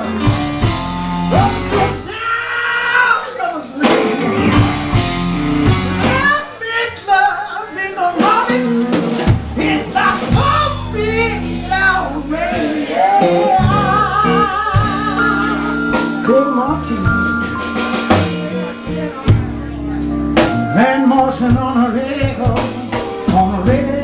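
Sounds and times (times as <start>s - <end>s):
live rock band playing: 0.0s - 2.2s, 3.6s - 6.7s, 7.3s - 24.0s
man singing: 1.3s - 4.4s, 6.0s - 19.5s, 20.5s - 24.0s.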